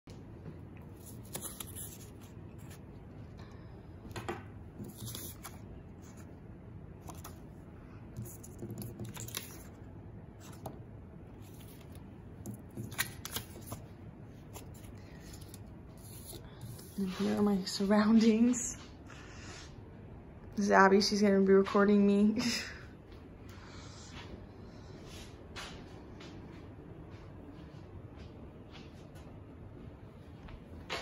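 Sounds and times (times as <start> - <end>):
index cards rustling and scraping: 0.8 - 3.4, 4.1 - 6.4, 7.0 - 7.5, 8.1 - 9.8, 10.4 - 17.9.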